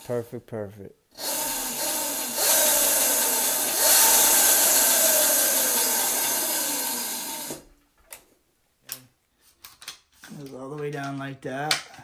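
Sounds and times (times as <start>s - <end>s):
electric motor whine: 1.2s - 7.6s.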